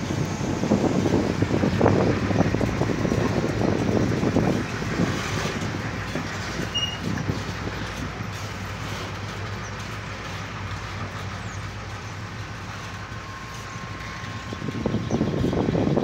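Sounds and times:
rough clatter of train: 0.0 - 16.0
train wheels rumbling on rails: 0.0 - 16.0.

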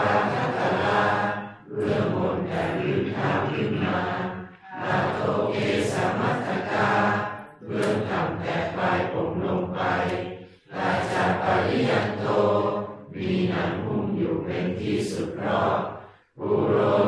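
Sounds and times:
voices chanting together: 0.0 - 17.0.

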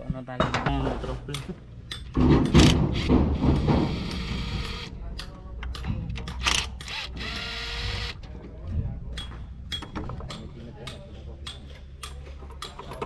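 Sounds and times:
cordless drill whirring: 6.9 - 8.2.

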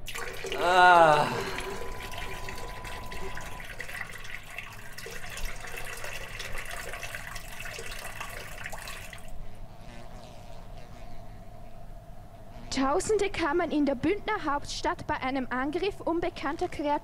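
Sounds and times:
water drips: 0.0 - 9.3
running trickling water: 0.0 - 9.4.

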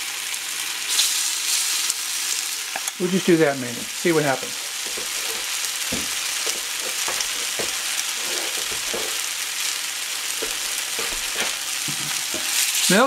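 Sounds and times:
batter sizzling in oil: 0.0 - 13.0
oil popping and crackling: 3.9 - 13.0.

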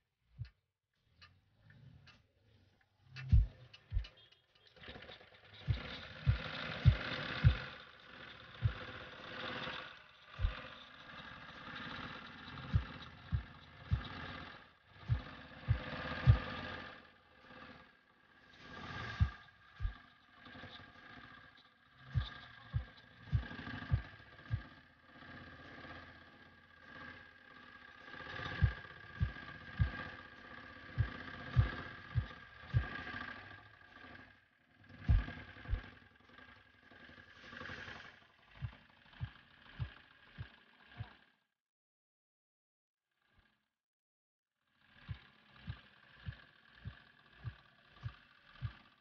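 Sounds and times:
diesel engine thumping: 5.6 - 9.0, 12.6 - 17.0, 35.1 - 35.9
steady hum: 5.6 - 34.0, 35.0 - 36.0.

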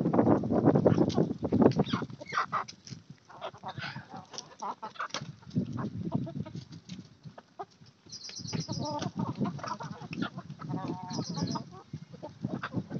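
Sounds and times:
chickens clucking: 0.8 - 12.9
high chirps: 8.1 - 8.9, 11.1 - 11.7
short chicken calls: 8.2 - 12.8.

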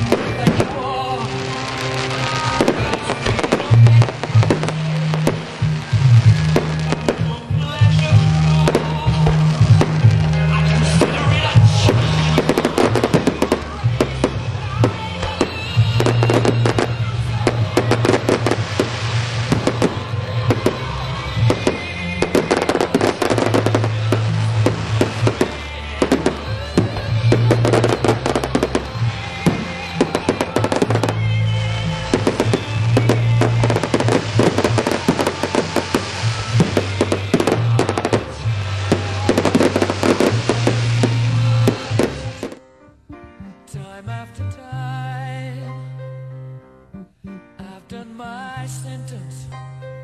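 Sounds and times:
fireworks crackling and popping: 0.0 - 42.7
loud music with bass: 0.0 - 47.6.

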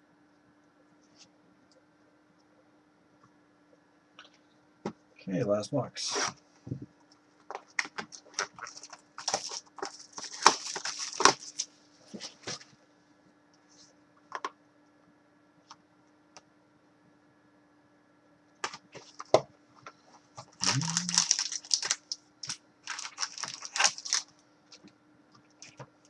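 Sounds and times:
box handling rustles: 7.5 - 12.7
plastic wrap crinkling and tearing: 7.5 - 12.7, 20.5 - 24.9.

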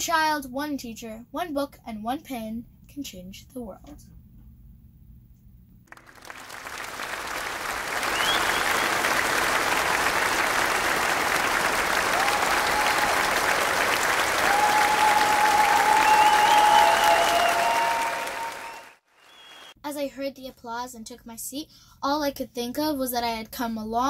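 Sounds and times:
large audience applauding: 5.9 - 19.8.

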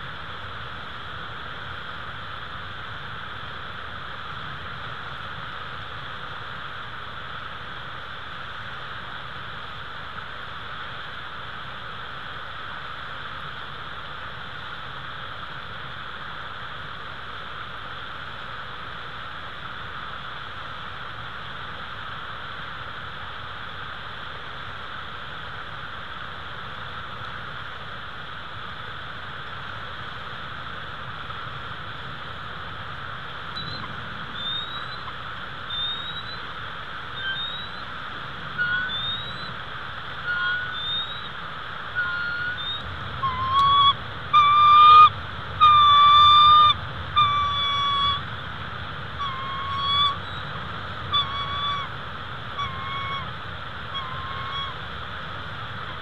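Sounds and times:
steady hiss: 0.0 - 56.0
eagles calling: 33.2 - 56.0
high-pitched bird chirps: 33.6 - 35.1, 35.7 - 36.4, 37.2 - 37.9, 38.6 - 39.6, 40.2 - 41.4, 42.0 - 48.2, 49.2 - 51.9, 52.5 - 53.3, 53.9 - 54.8.

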